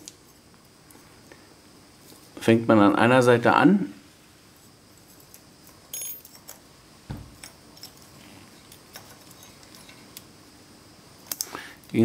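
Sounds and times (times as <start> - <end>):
faint metallic clicks and clinks: 7.4 - 10.2.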